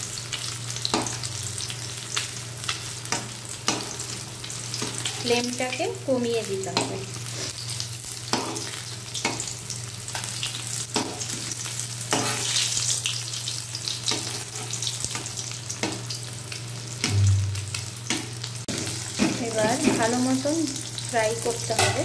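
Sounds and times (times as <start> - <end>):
fish sizzling in hot oil: 0.0 - 22.0
metal spatula scraping pan: 12.1 - 12.6
short low bump: 17.1 - 17.7.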